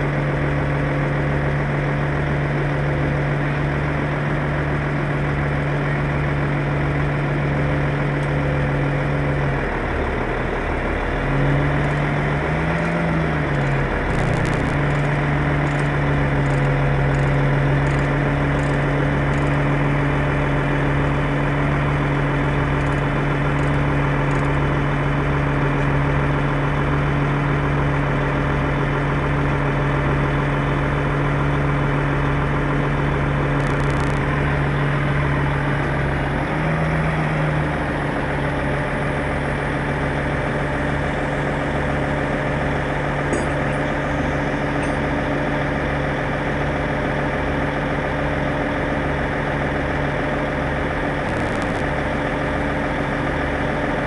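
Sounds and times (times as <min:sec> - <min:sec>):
heavy diesel engine idling: 0:00.0 - 0:54.0.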